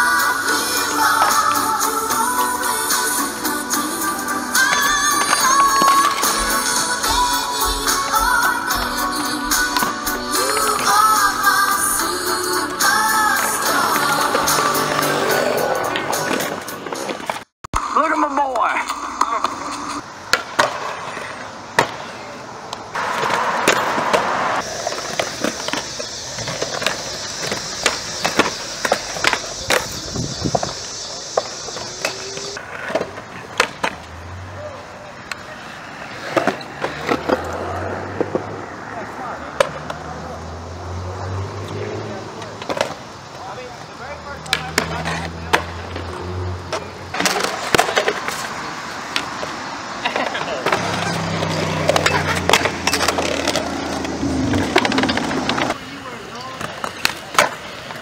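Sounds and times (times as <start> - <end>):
skateboards clacking: 0.0 - 40.5, 41.6 - 58.0
skateboard wheels rolling on concrete: 0.0 - 58.0.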